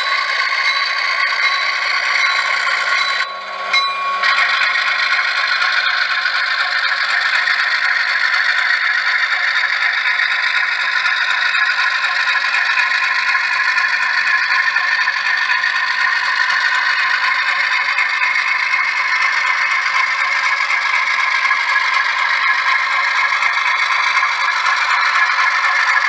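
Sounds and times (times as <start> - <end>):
model train wheels rattling on track: 0.0 - 26.0.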